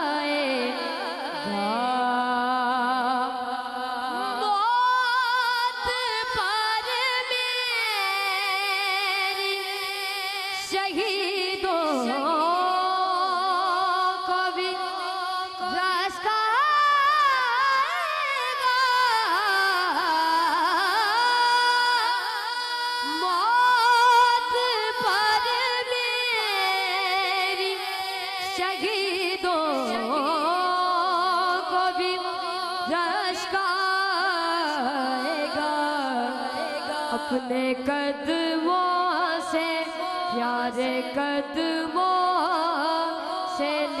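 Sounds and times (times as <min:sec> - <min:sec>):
boy singing into a microphone: 0:00.0 - 0:44.0.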